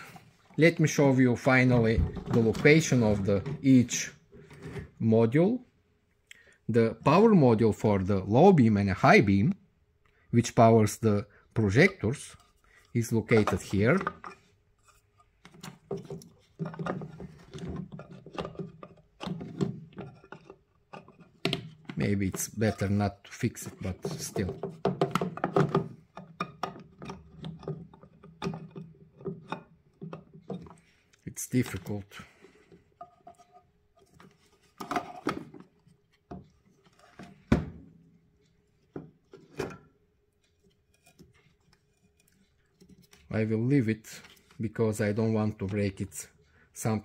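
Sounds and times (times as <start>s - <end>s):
metal scraping on plastic housing: 11.7s - 31.0s
hard plastic rubbing and clicking: 11.8s - 31.9s, 38.4s - 43.4s.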